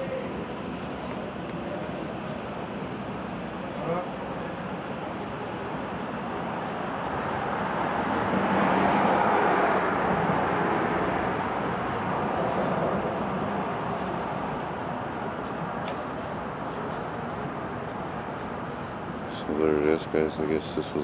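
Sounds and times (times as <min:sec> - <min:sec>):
vehicle passing: 0:07.0 - 0:14.4.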